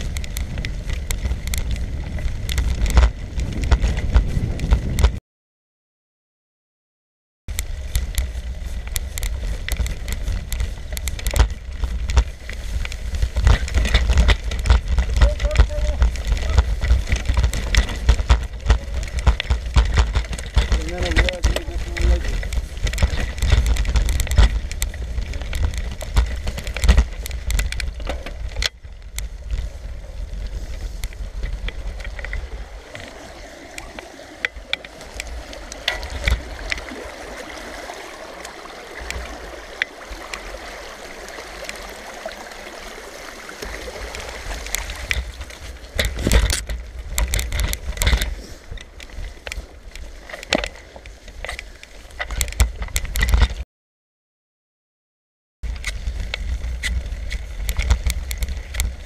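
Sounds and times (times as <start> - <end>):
bicycle rattles and clicks: 0.0 - 5.2, 7.5 - 53.6, 55.6 - 59.0
wind buffeting microphone: 0.0 - 5.2, 7.5 - 53.6
bicycle tyres hissing: 48.3 - 49.7.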